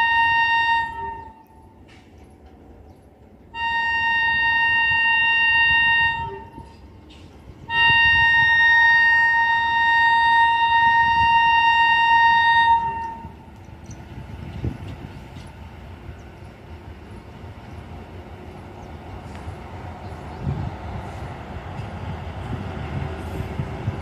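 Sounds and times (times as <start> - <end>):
locomotive horn blasts: 0.0 - 1.6, 3.5 - 6.8, 7.7 - 13.5
train rumble: 0.0 - 24.0.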